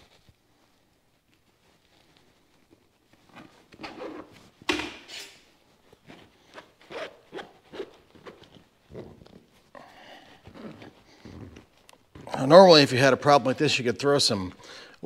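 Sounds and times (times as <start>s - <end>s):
scraping and rubbing on fabric: 0.0s - 13.8s.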